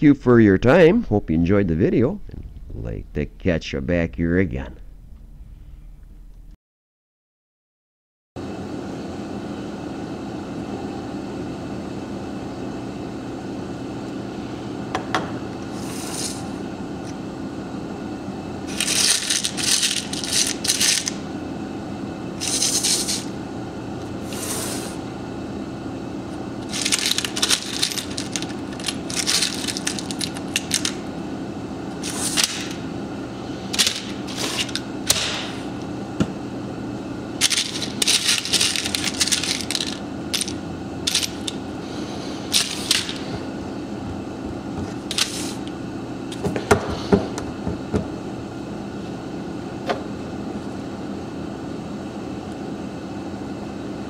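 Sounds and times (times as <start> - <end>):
steady low hum: 0.0 - 6.6, 8.5 - 54.0
metal screws clattering: 26.7 - 30.9, 37.4 - 41.6.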